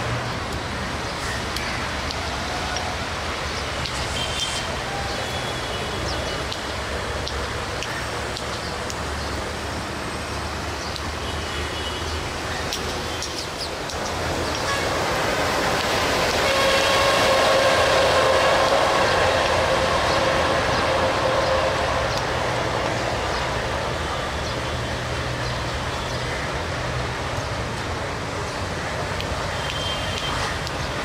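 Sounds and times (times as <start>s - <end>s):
locomotive engine humming: 12.8s - 26.0s.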